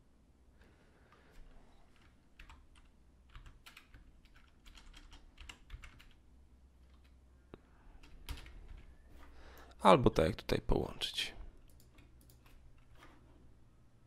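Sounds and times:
keyboard keys tapping: 1.3s - 6.2s, 8.0s - 9.3s.

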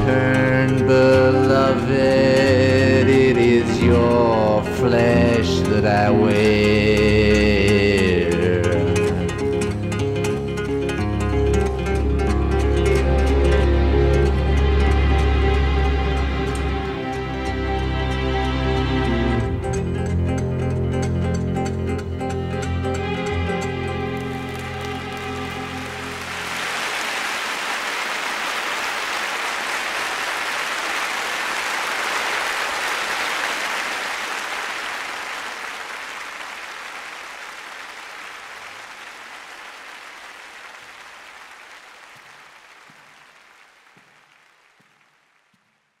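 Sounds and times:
music: 0.0s - 26.9s
audience applauding: 23.0s - 46.0s.

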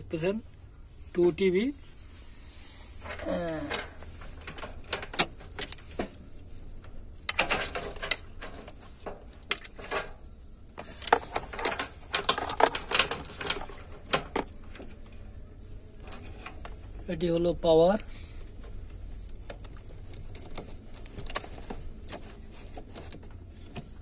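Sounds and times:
computer hardware clicking and rattling: 3.0s - 10.2s, 10.8s - 14.9s, 19.3s - 21.8s.

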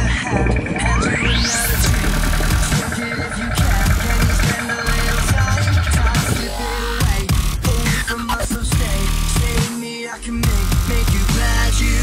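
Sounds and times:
electronic dance music with deep bass: 0.0s - 12.0s.

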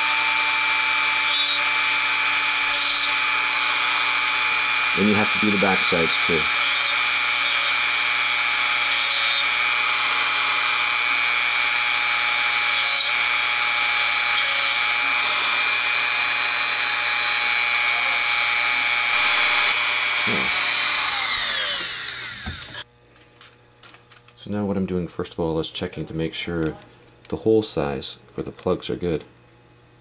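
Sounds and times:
rotary tool grinding whine: 0.0s - 22.9s
motor spinning down: 1.1s - 22.8s.

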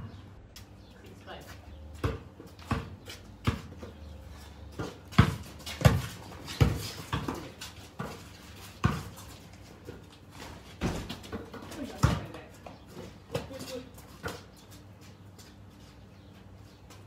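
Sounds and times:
basketball bouncing on concrete: 1.9s - 10.1s, 10.7s - 14.8s.

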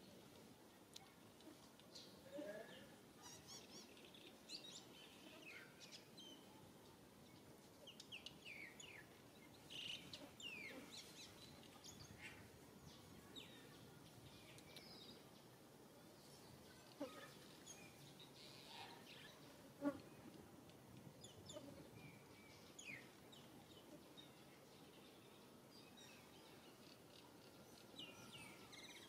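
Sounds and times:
outdoor background hiss: 0.0s - 29.0s.

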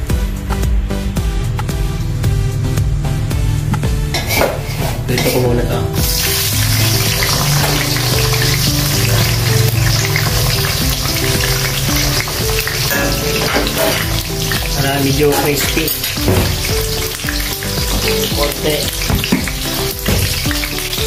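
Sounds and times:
oil sizzling in a wok: 6.0s - 21.0s.

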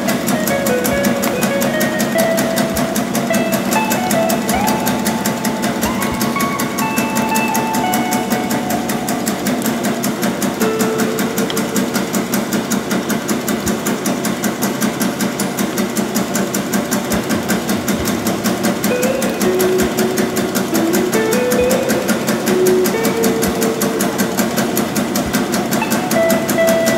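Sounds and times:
machine clattering rhythmically: 0.0s - 26.9s.

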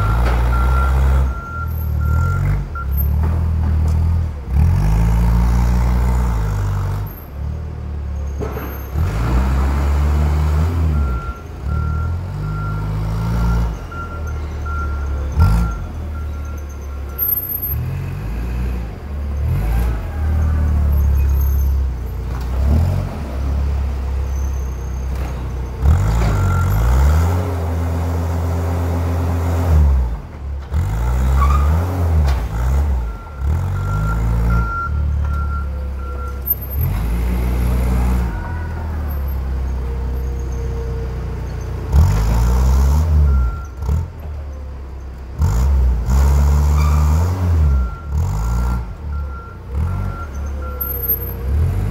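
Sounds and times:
forklift engine running: 0.0s - 51.9s
high thin beep: 16.5s - 17.8s.

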